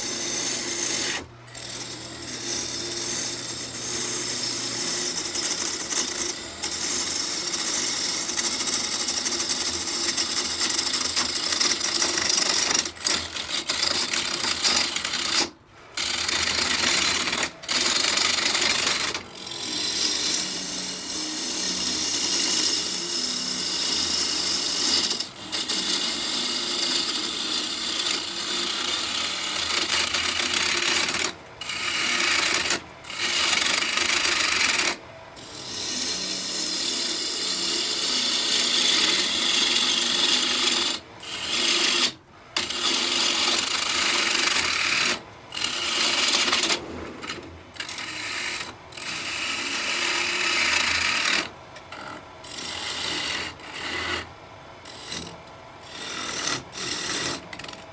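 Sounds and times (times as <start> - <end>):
gouge scraping spinning wood: 0.0 - 57.9.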